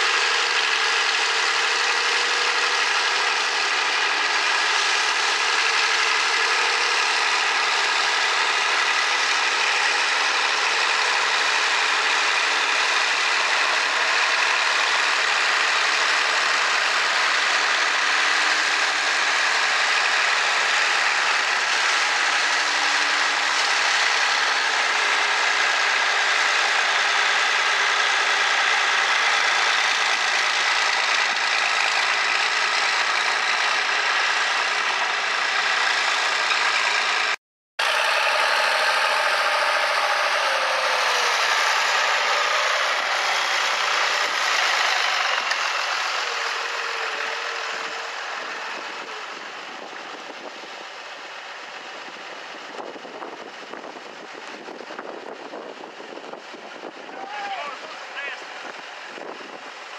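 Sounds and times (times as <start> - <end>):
hedge cutter working: 0.0 - 59.9
tractor diesel engine running: 0.0 - 59.9.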